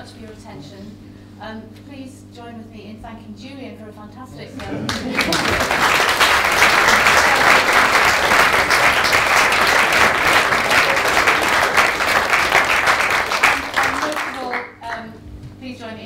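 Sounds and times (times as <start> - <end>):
audience applauding: 4.6 - 14.9.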